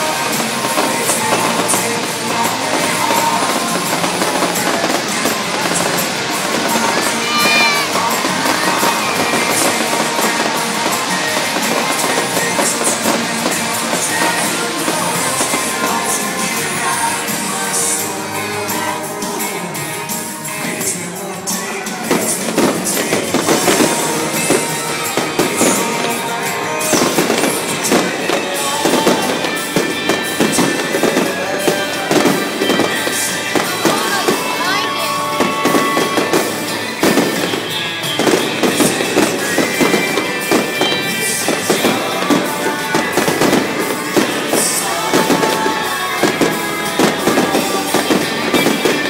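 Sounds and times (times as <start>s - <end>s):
fireworks bangs: 0.0s - 49.0s
music playing: 0.0s - 49.0s.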